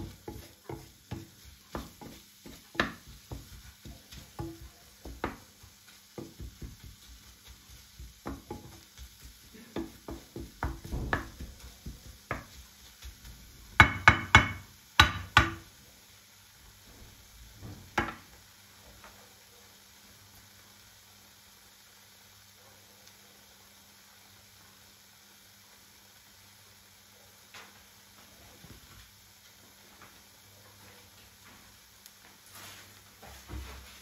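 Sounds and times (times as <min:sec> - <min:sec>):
utensil knocking and scraping in pan: 0:00.0 - 0:15.7, 0:17.6 - 0:18.3, 0:32.6 - 0:34.0
faint sizzle of frying: 0:00.0 - 0:34.0.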